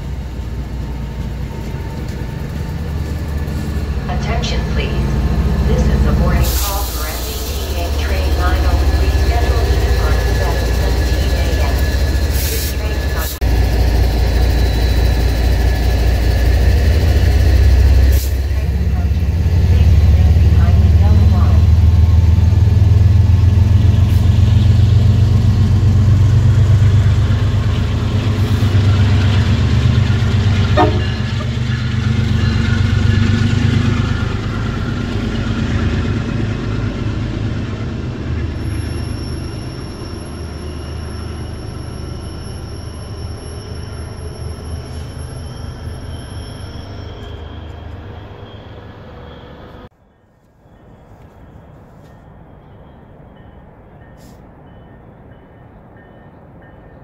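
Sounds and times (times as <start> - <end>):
diesel locomotive engine hum: 0.0 - 57.0
train clank: 28.2 - 33.8.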